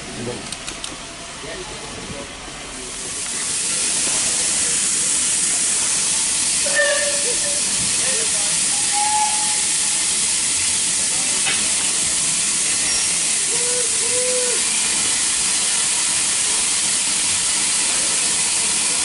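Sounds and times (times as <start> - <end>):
steam locomotive hissing steam: 2.5 - 19.0.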